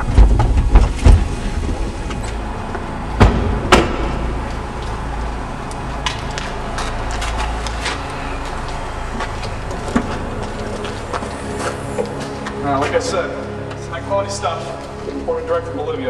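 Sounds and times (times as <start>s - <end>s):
thud: 0.0s - 2.2s, 3.2s - 4.3s
car doors slamming: 0.0s - 2.5s, 3.2s - 4.4s
low steady rumble: 0.0s - 16.0s
footsteps on concrete floor: 2.0s - 15.3s.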